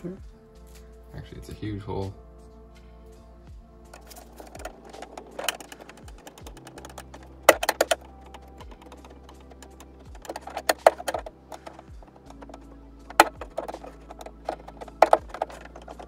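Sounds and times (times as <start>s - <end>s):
background music with low beat: 0.0s - 16.0s
tools tapping on car panel: 4.0s - 16.0s.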